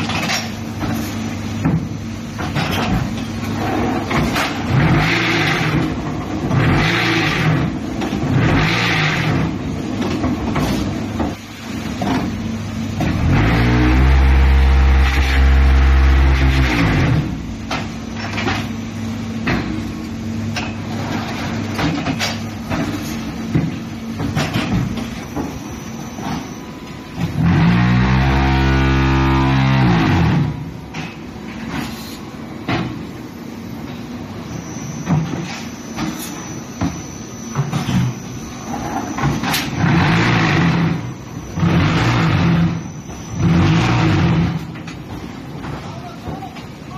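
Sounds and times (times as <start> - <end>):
loud low machine drone: 13.0 - 17.8, 27.2 - 31.0.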